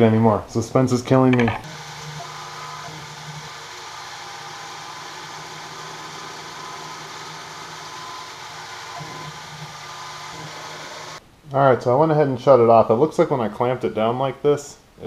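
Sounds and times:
faint steady tones: 1.6 - 11.2
milling machine motor hum: 1.6 - 11.2.

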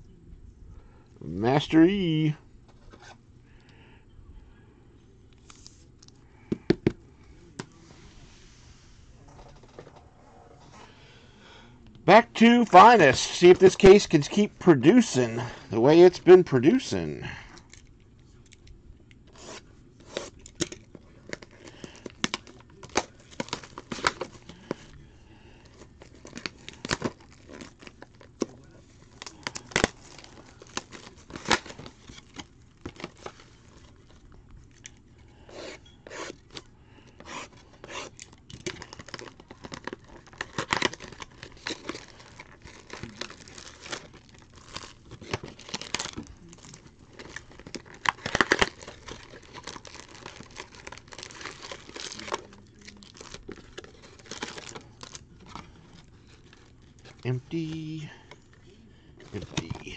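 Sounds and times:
plastic shrink-wrap tearing: 25.7 - 34.1, 37.8 - 57.7.

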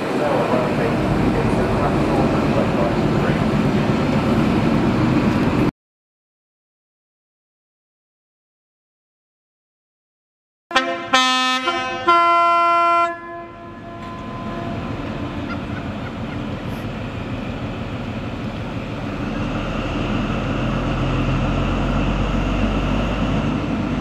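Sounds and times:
diesel train engine: 0.0 - 5.7, 10.7 - 24.0
train horn blast: 10.7 - 16.2.

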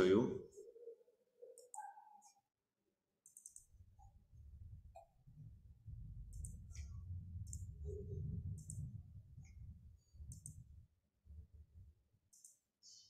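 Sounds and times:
faint computer mouse clicks: 3.2 - 3.7, 10.3 - 10.6, 12.3 - 12.6
low rumble: 4.3 - 12.0.

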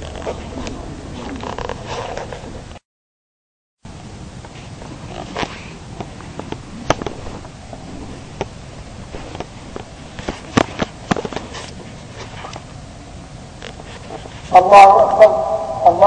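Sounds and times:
outdoor background rumble: 0.0 - 2.8, 3.9 - 14.6
sharp pops and clicks: 6.0 - 7.5.

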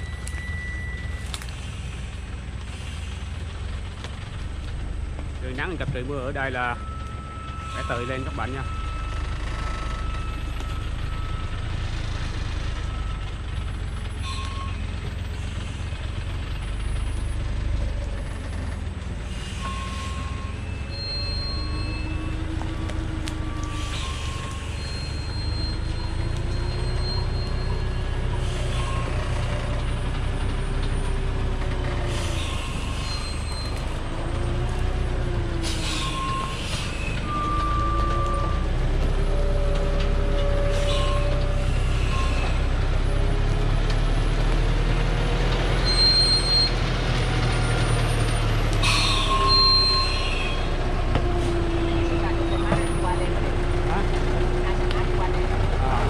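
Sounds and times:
brake and truck body squeals: 0.0 - 3.5, 5.4 - 54.0
diesel truck engine running low: 0.0 - 56.0
brake hiss: 1.1 - 4.2, 19.2 - 20.7.

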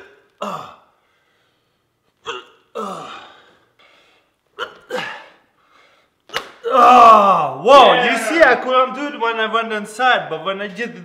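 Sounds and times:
man grunting with effort: 2.4 - 3.5, 6.6 - 7.6
sharp smack of arms on hips: 6.2 - 6.7.

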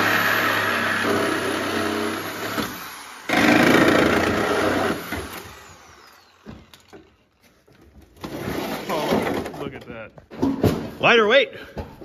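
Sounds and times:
reciprocating saw cutting metal: 0.0 - 7.0.

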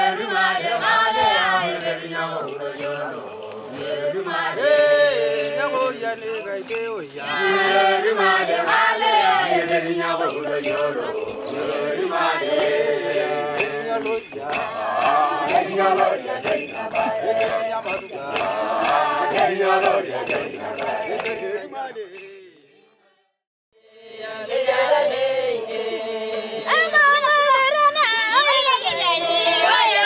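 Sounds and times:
group chanting a song: 0.0 - 6.1, 7.1 - 22.6, 23.8 - 26.8, 28.5 - 30.0.

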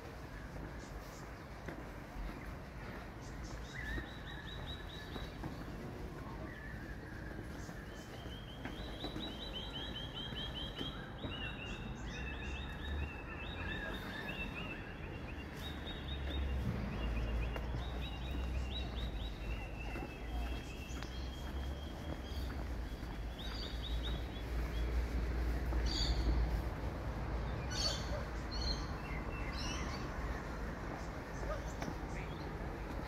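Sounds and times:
birds chirping: 0.0 - 33.0.

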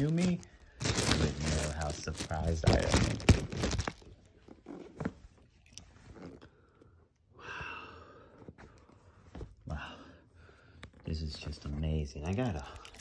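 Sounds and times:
cardboard box handling noise: 0.0 - 5.4.

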